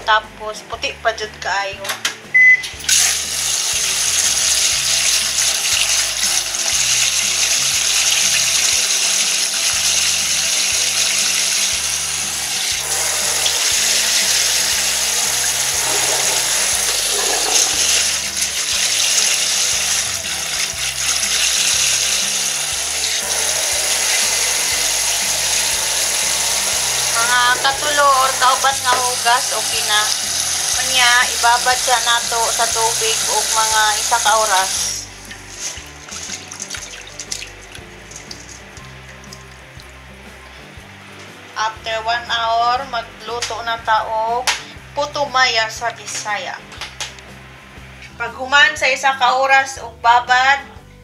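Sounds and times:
water splashing into metal sink: 0:02.9 - 0:39.9.

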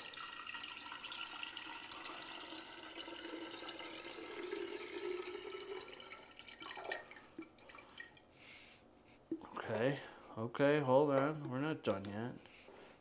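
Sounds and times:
coffee pouring into a pitcher: 0:00.0 - 0:08.2.

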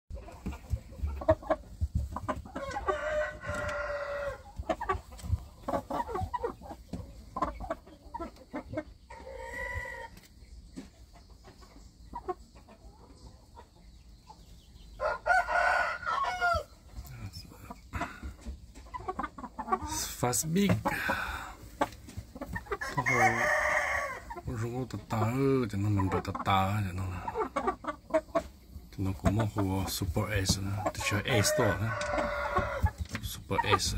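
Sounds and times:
chicken clucks: 0:00.1 - 0:33.9
roosters crowing: 0:02.5 - 0:04.6, 0:09.2 - 0:10.2, 0:15.0 - 0:16.8, 0:19.9 - 0:21.6, 0:22.7 - 0:24.7, 0:30.2 - 0:33.9.

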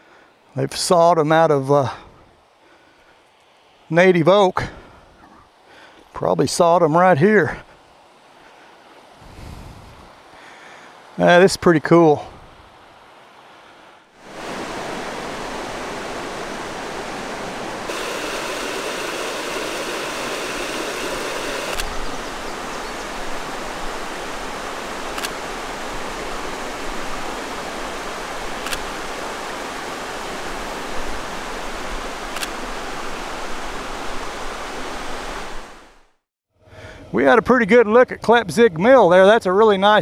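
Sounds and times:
creek water rushing over rocks: 0:14.2 - 0:36.0.

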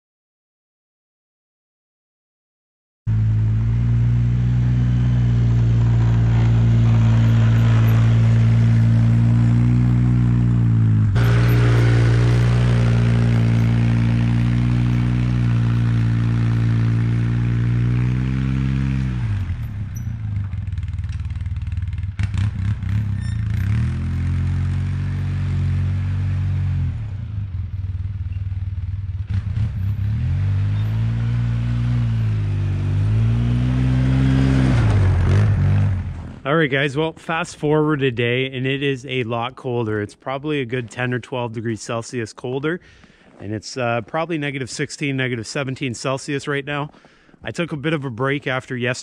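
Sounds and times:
atv engine running: 0:03.1 - 0:36.5.

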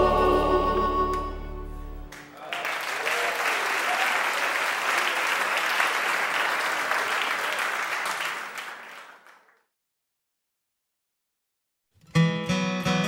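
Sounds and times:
audience applauding: 0:02.1 - 0:09.6.

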